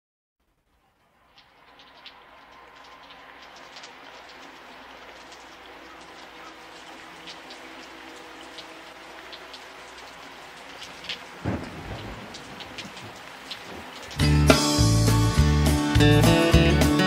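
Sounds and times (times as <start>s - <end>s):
steady rain: 0.4s - 17.0s
water drips and patters: 0.4s - 17.0s
low rumble of thunder: 11.4s - 14.2s.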